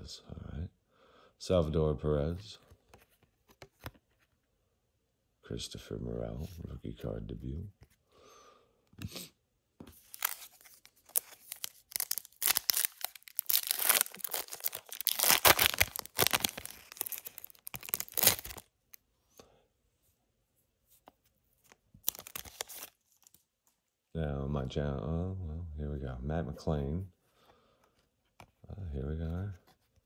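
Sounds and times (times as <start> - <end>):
foil wrapper tearing and crinkling: 10.0 - 18.7, 22.0 - 23.4.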